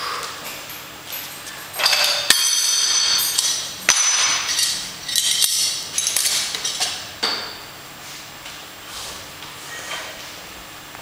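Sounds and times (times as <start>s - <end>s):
weight plates clanking: 1.7s - 7.5s.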